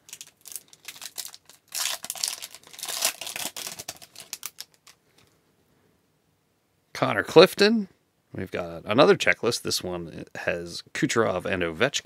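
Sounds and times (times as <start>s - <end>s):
foil wrapper tearing and crinkling: 0.0s - 5.0s.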